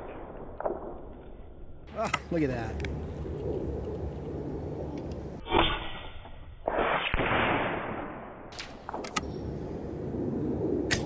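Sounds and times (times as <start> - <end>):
sharp clicks: 8.6 - 9.3.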